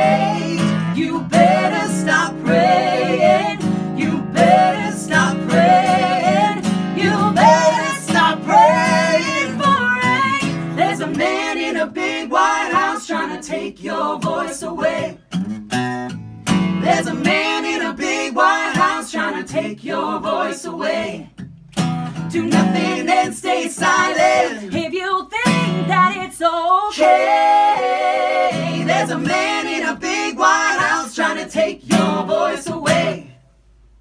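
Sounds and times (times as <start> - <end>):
acoustic guitar strumming: 0.0 - 11.7, 14.2 - 17.8, 21.4 - 24.6, 25.4 - 26.2, 31.9 - 33.3
man and woman singing together: 0.0 - 15.2, 16.8 - 21.3, 22.3 - 33.4.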